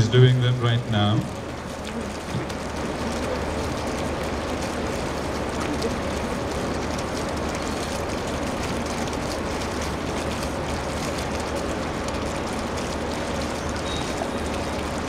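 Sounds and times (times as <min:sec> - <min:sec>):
venue low hum: 0:00.0 - 0:10.1.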